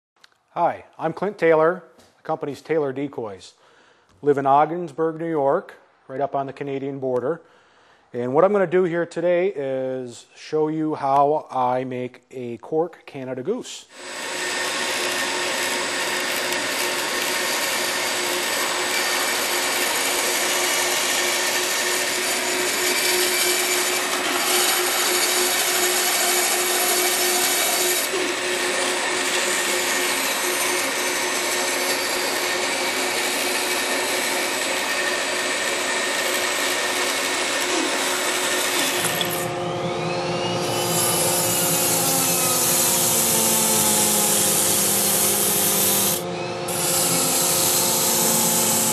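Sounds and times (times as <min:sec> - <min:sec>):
power tool running: 0:13.9 - 0:48.9
hissing tool with rising whine: 0:37.8 - 0:48.9.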